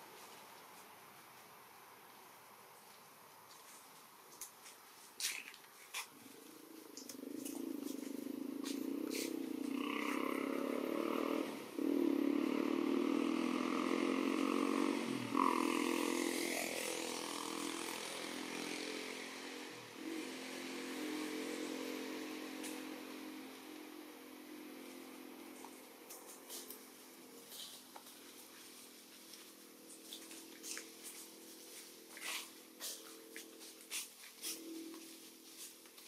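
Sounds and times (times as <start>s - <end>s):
vehicle engine running: 11.8s - 35.7s.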